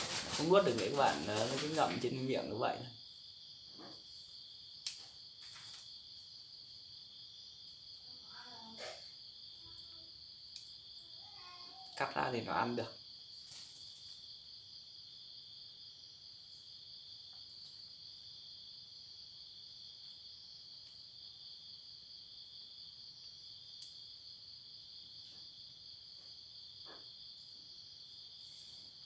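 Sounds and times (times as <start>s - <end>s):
crickets chirping: 0.0s - 29.0s.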